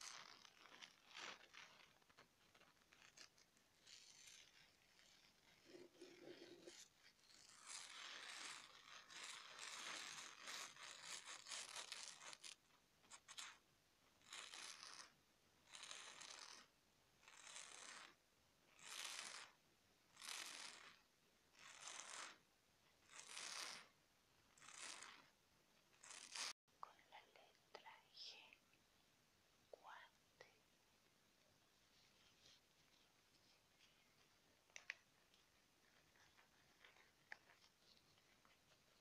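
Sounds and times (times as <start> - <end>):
craft foam sheets scratching: 0.0 - 13.6, 14.2 - 22.4, 23.0 - 26.6.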